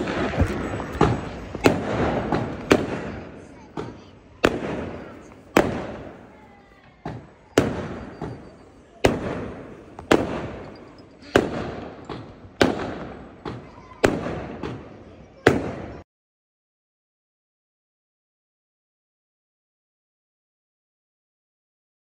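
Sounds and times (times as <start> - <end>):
fireworks bangs: 0.0 - 16.0.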